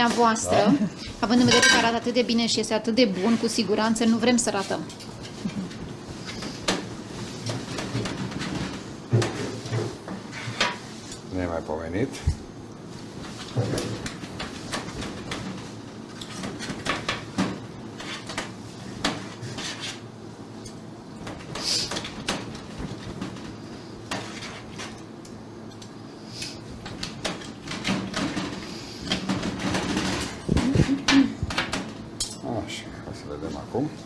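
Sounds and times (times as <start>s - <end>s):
plates and pans clinking: 1.4s - 2.0s.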